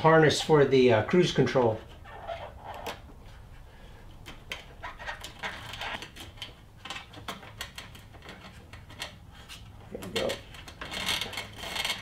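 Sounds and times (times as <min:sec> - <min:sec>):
clicks and scrapes on sheet metal: 0:04.5 - 0:12.0.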